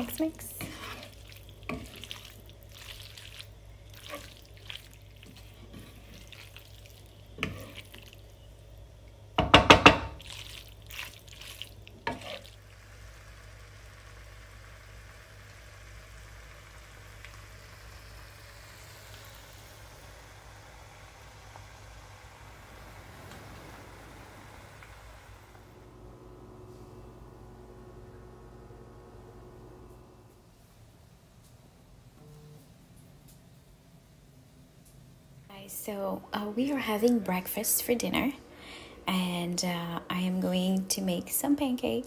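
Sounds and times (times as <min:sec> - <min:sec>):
utensil scraping frying pan: 0:00.0 - 0:08.2, 0:09.6 - 0:12.6
hot pan hissing: 0:12.0 - 0:25.8.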